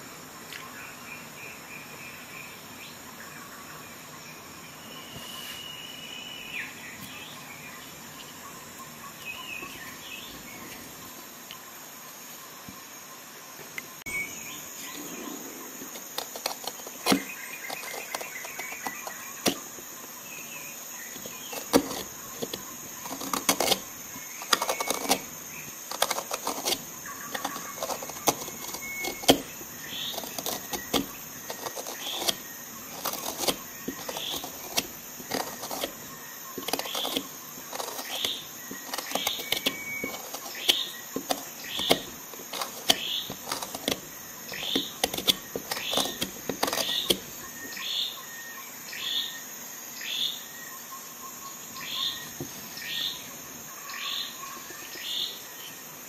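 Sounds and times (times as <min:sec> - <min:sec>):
gouge scraping wood: 0:14.9 - 0:19.9, 0:21.1 - 0:47.6.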